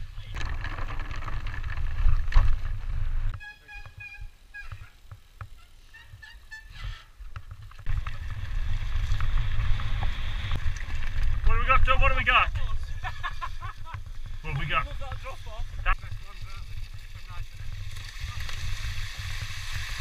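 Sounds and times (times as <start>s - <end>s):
wind rumble on microphone: 0.0s - 3.4s, 6.1s - 20.0s
short high-pitched tones: 3.4s - 4.9s.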